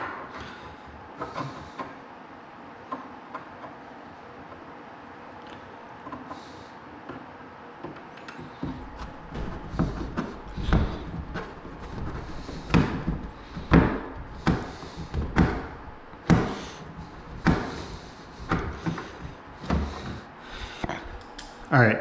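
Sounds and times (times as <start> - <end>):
knocks on cabinet panels: 8.6 - 20.2.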